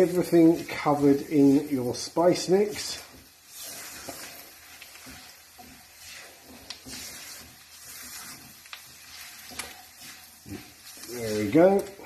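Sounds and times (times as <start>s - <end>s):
faint sizzle: 0.0s - 12.0s
spatula scraping a frying pan: 0.0s - 12.0s
spatula clicking on pan: 3.1s - 11.2s.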